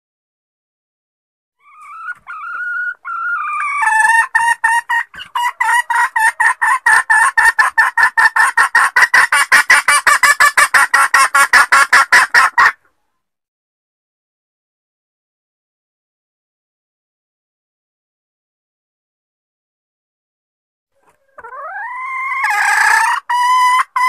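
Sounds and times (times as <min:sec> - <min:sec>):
hen clucking: 0:01.6 - 0:12.9, 0:21.0 - 0:24.0.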